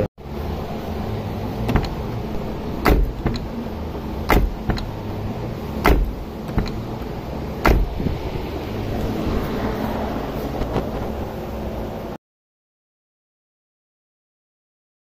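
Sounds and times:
steady background hum: 0:00.0 - 0:12.2
car door latch clicking: 0:01.6 - 0:02.0, 0:02.8 - 0:03.6, 0:04.2 - 0:05.0, 0:05.8 - 0:08.2.

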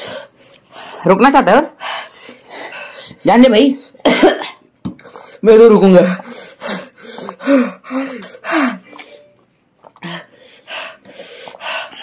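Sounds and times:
person gasping: 0:06.0 - 0:09.3
heavy breathing through mouth: 0:06.1 - 0:09.3, 0:10.0 - 0:12.0.

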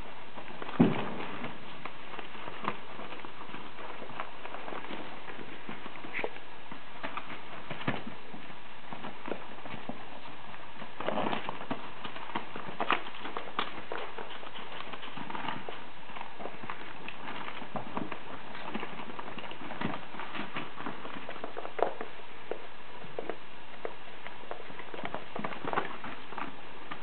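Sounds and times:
patter of small paws: 0:00.0 - 0:27.0.

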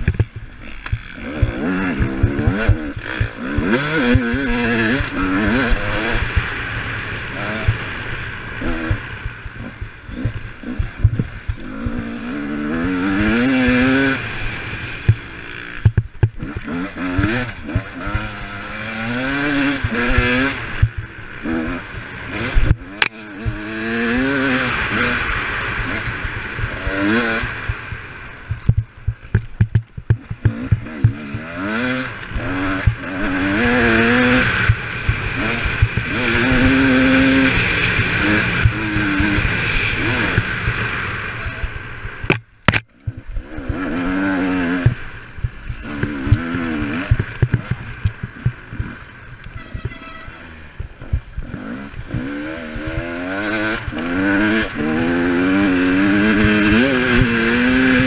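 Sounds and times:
quad engine revving: 0:00.0 - 0:58.0
knocks and rattles: 0:28.5 - 0:31.4.

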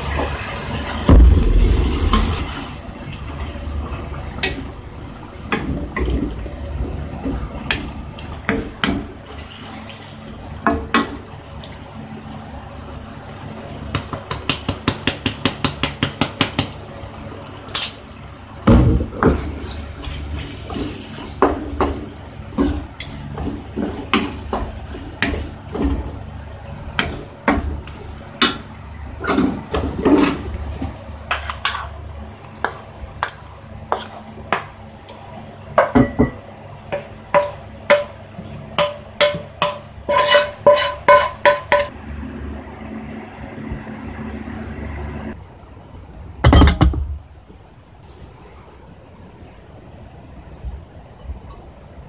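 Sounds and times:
spatula scraping a pan: 0:32.5 - 0:34.2, 0:37.4 - 0:41.9.

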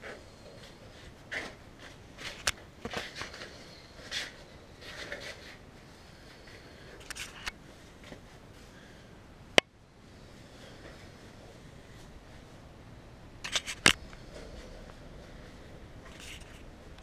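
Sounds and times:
handling rustles and shuffles: 0:00.0 - 0:08.9, 0:13.4 - 0:17.0.

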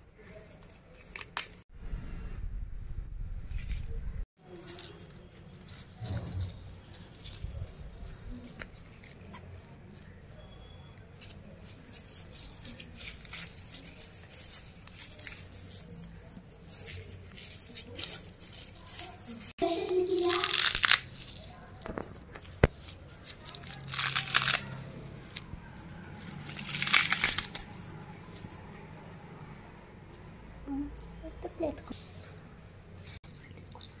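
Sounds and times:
low rumble: 0:01.7 - 0:04.2
leaves rustling and crackling: 0:03.5 - 0:29.6.

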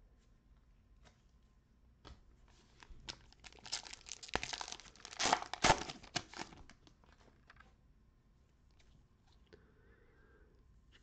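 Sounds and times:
wrapper crinkling: 0:03.1 - 0:07.7.

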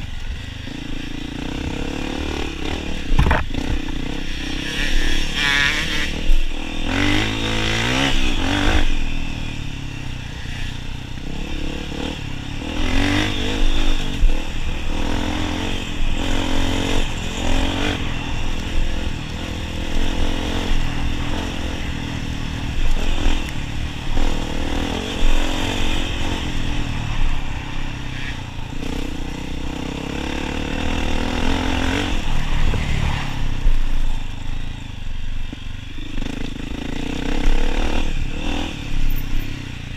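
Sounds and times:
dirt bike engine revving: 0:00.0 - 0:34.4, 0:36.0 - 0:39.7.

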